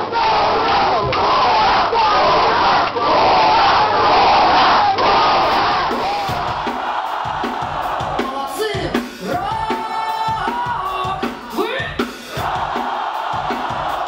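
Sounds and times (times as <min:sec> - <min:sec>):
drum hits: 0:05.4 - 0:14.0
woman singing lead: 0:08.2 - 0:12.0.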